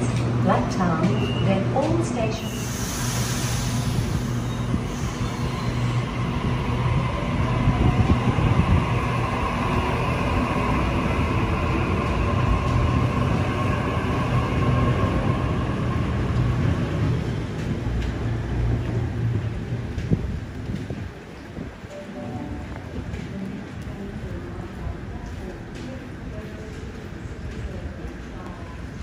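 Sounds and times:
train wheels rumbling on rail: 0:00.0 - 0:29.0.

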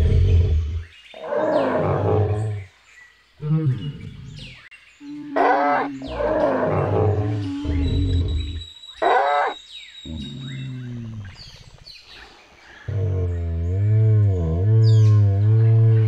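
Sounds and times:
cartoon dinosaur roars: 0:00.0 - 0:02.6, 0:05.3 - 0:08.6
low dinosaur grumbles: 0:00.0 - 0:02.6, 0:05.2 - 0:08.6, 0:10.1 - 0:11.6, 0:12.8 - 0:16.0.

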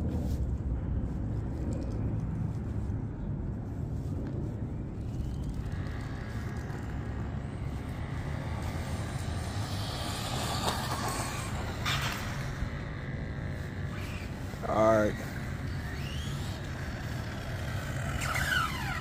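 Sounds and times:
low steady rumble: 0:00.0 - 0:19.0
rc car electric whine: 0:04.9 - 0:19.0.

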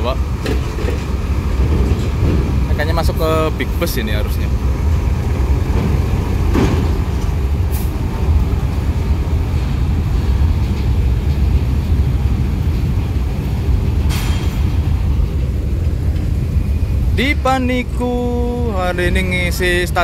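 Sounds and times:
bus heavy low rumble: 0:00.0 - 0:20.0
metallic clanks: 0:13.9 - 0:16.4.

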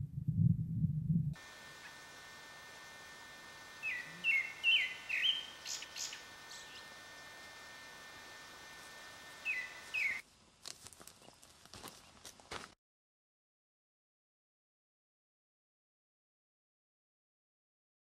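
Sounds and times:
steady hiss: 0:01.4 - 0:10.2
wild birds chirping: 0:03.6 - 0:07.2, 0:09.3 - 0:10.2.

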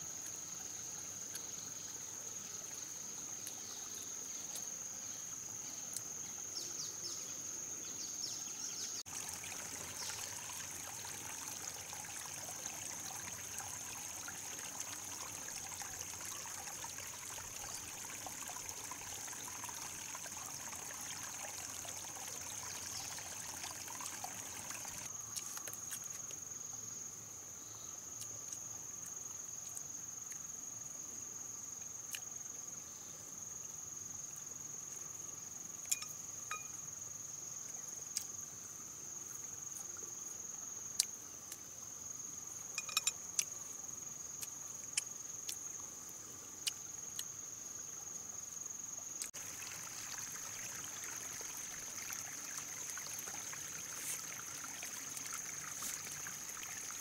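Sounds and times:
light hiss: 0:34.2 - 0:57.0
high-pitched insect drone: 0:35.8 - 0:37.0, 0:42.7 - 0:43.2
low steady tone: 0:35.9 - 0:36.9, 0:42.8 - 0:43.2.

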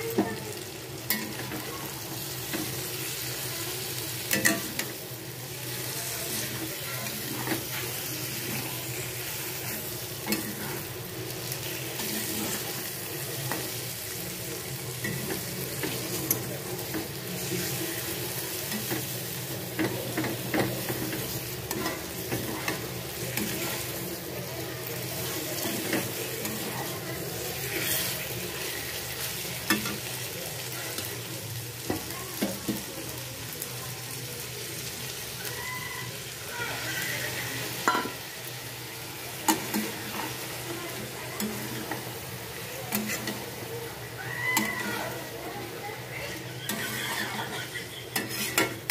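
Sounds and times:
chicken sizzling in a pan: 0:00.0 - 0:48.9
metal spatula scraping pan: 0:27.5 - 0:30.0, 0:42.9 - 0:43.6, 0:46.7 - 0:48.9.

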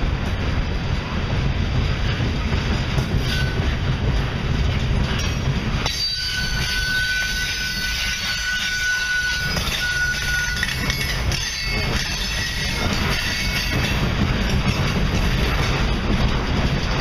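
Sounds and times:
freight car wheels rumbling: 0:00.0 - 0:17.0
high-pitched wheel squeal: 0:05.9 - 0:13.8.

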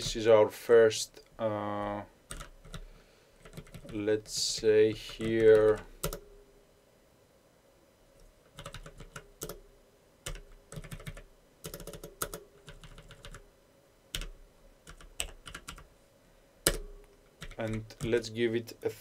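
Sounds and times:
typing on computer keyboard: 0:02.3 - 0:06.3, 0:08.5 - 0:09.6, 0:10.2 - 0:13.4, 0:14.1 - 0:15.9, 0:16.6 - 0:18.2.

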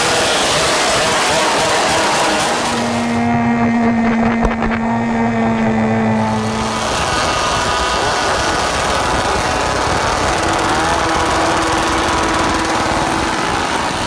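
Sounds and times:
chainsaws revving: 0:06.1 - 0:14.0.

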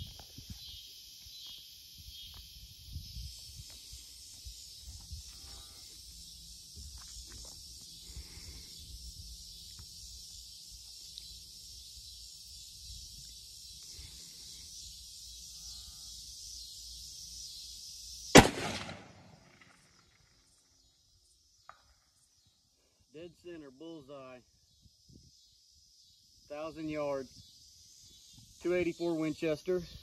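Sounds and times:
rifle shot: 0:18.4 - 0:19.8.

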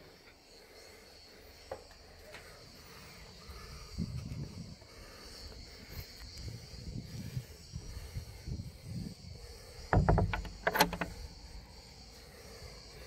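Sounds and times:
wooden door rattling in frame: 0:09.9 - 0:11.2.

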